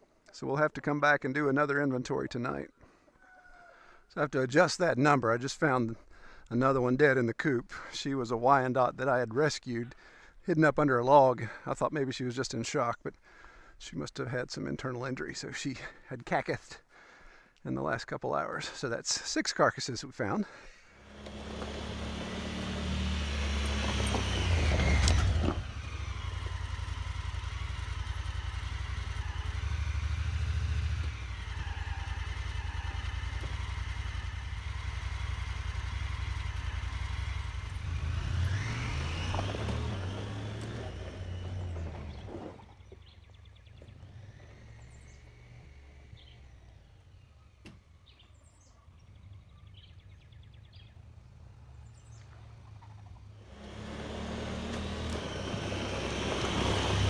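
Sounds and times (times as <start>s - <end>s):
utility vehicle engine running: 21.0s - 48.2s, 49.1s - 57.0s
birds chirping: 38.5s - 55.4s.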